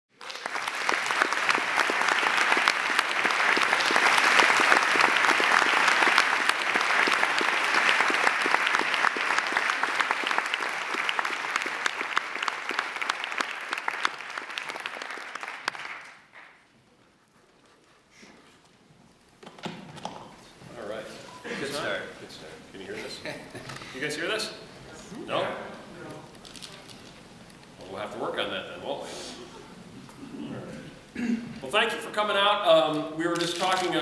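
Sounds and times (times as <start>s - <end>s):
audience applauding: 0.1s - 16.7s.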